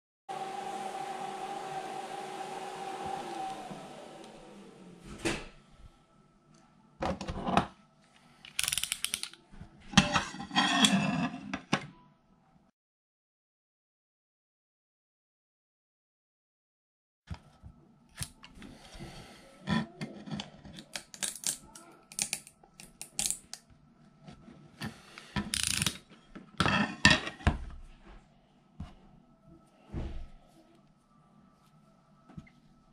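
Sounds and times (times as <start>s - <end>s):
knocks and scrapes of handling: 7.0s - 7.8s, 9.6s - 11.9s
glass plate scraping and knocking: 9.9s - 11.7s, 26.6s - 27.6s.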